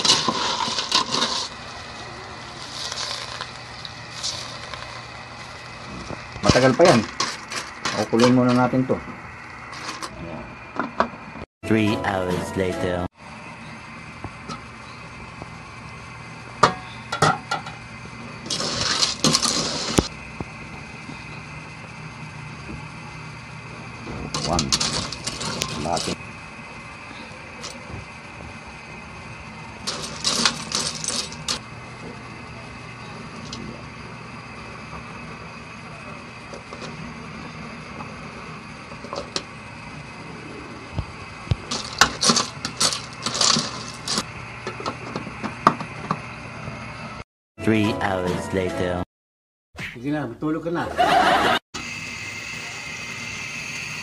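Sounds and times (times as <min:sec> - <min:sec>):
shells scraping against pot: 0:00.0 - 0:08.7, 0:09.7 - 0:10.1, 0:18.4 - 0:20.1, 0:24.3 - 0:26.2, 0:29.8 - 0:31.6, 0:41.7 - 0:44.3
pot boiling on gas burner: 0:00.0 - 0:11.4, 0:13.2 - 0:47.2, 0:51.1 - 0:54.0.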